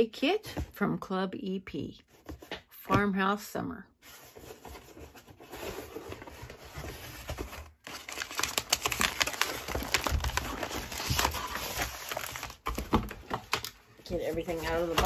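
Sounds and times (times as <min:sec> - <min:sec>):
paper packaging rustling: 0:04.0 - 0:15.0.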